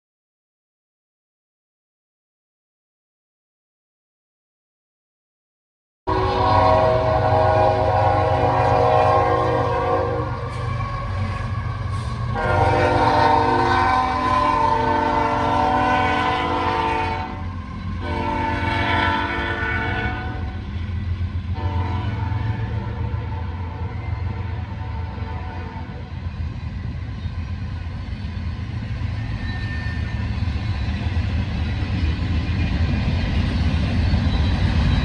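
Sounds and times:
locomotive horn blasts: 6.1 - 17.4, 18.0 - 20.6, 21.6 - 26.0
locomotive rumble passing: 6.1 - 35.0.

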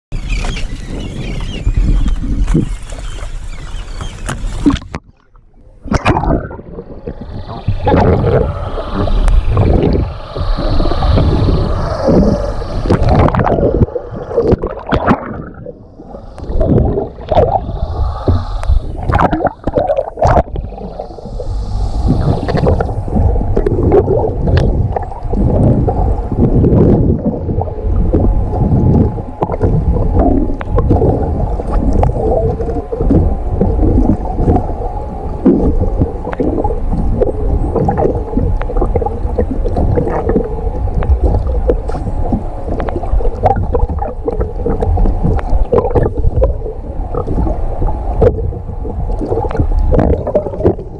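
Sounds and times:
water rushing underwater: 2.0 - 50.9
faint steady hum: 5.6 - 50.9.

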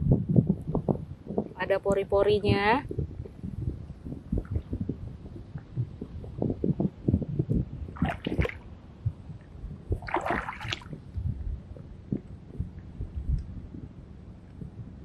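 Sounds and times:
low rumble: 0.0 - 15.0
seawater sloshing and splashing: 7.9 - 8.7, 9.9 - 11.2.

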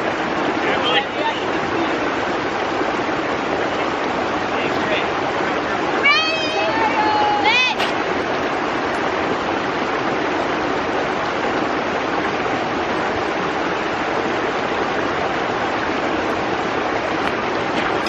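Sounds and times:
river water rushing over rocks: 0.0 - 18.0.

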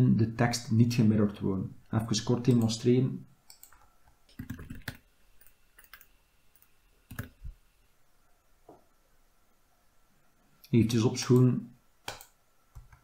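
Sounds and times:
keyboard typing: 3.5 - 7.5, 12.1 - 13.0.

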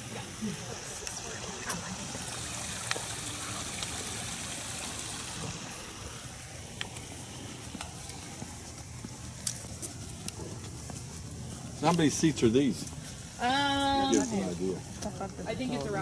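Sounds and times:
steady rushing hiss: 0.0 - 16.0
footsteps on a paved path: 5.2 - 16.0.

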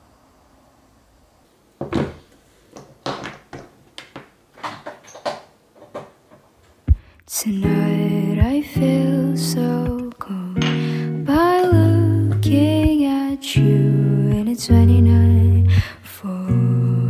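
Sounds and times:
things set down on counter: 1.8 - 2.2, 2.8 - 6.4
acoustic guitar music: 6.9 - 15.9.

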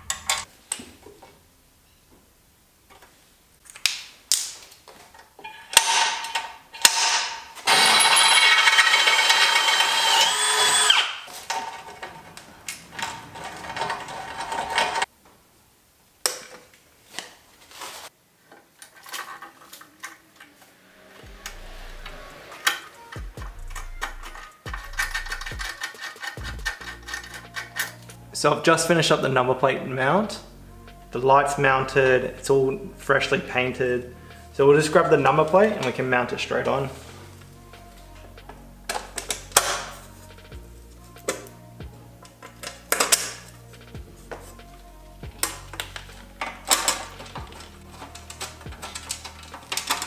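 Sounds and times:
power drill boring through steel: 7.6 - 11.3
clicks and knocks of tools: 23.8 - 28.2, 42.2 - 43.5, 45.4 - 50.0.

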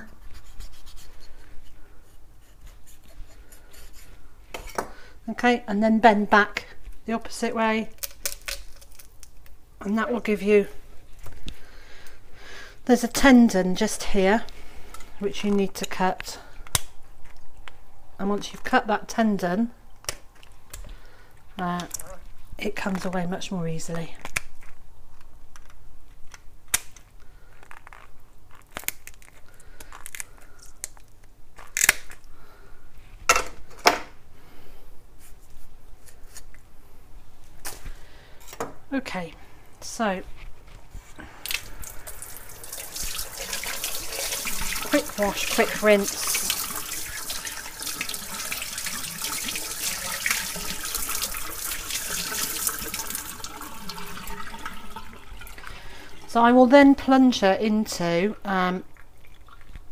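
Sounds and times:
tap water splashing into sink: 42.2 - 55.7.

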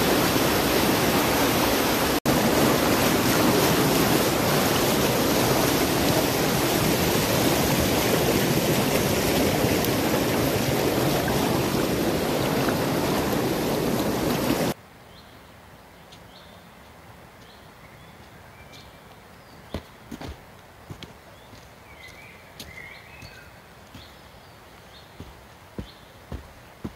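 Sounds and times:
river water rushing: 0.0 - 14.8.

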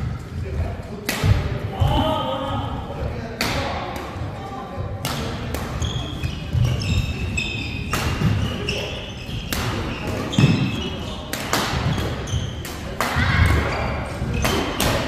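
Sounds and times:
racket hitting shuttlecock: 1.0 - 1.5, 7.8 - 8.6, 9.3 - 13.7, 14.3 - 15.0
shoes squeaking on court: 5.7 - 12.6.

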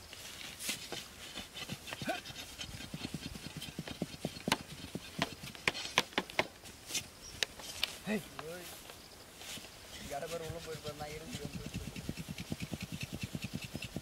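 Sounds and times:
wooden sticks striking brush: 3.6 - 14.0
dry grass rustling and crackling: 6.6 - 14.0.

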